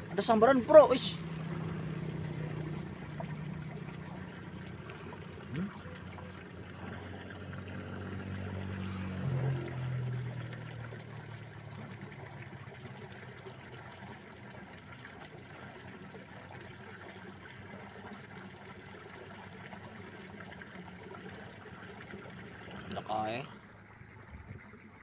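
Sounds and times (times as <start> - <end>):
water flowing in a canal: 0.0 - 25.0
brief low hum: 2.3 - 7.2.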